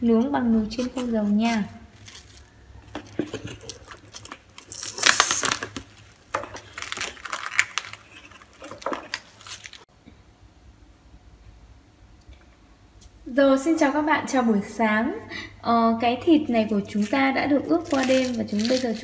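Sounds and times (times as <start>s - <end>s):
cling film crinkling: 0.8s - 9.9s, 16.5s - 19.0s.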